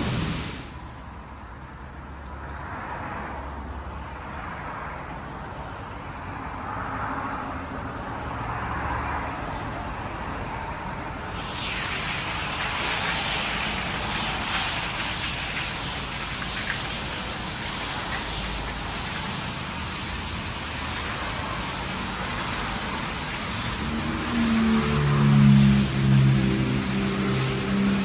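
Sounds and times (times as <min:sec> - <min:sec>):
water spray striking car: 0:00.0 - 0:05.4, 0:06.2 - 0:28.0.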